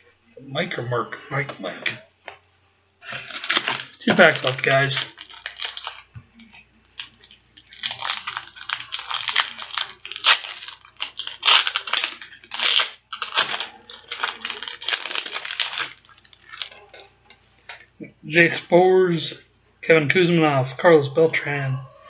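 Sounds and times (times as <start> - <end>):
card pack wrapper tearing: 3.0 - 17.0
wrapper crinkling: 3.0 - 17.9.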